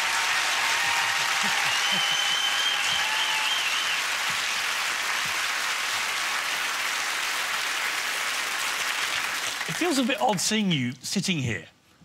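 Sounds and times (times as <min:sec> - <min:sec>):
studio audience applauding: 0:00.0 - 0:10.6
wavering whistle from crowd: 0:01.6 - 0:04.1.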